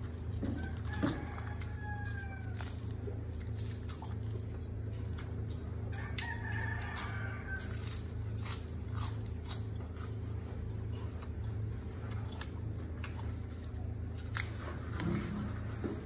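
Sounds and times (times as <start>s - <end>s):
crunchy lettuce chewing: 0.0s - 16.0s
steady low hum: 0.0s - 16.0s.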